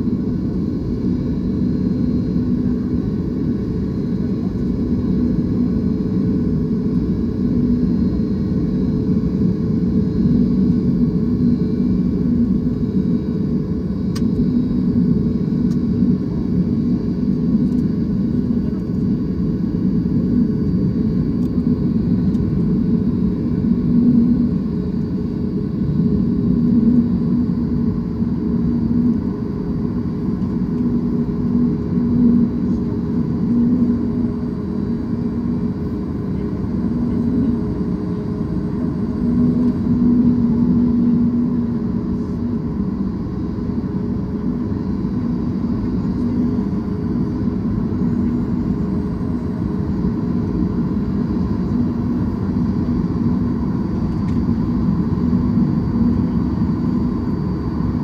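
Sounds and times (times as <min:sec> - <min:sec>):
airliner cabin rumble: 0:00.0 - 0:58.0
constant low hum: 0:00.0 - 0:58.0.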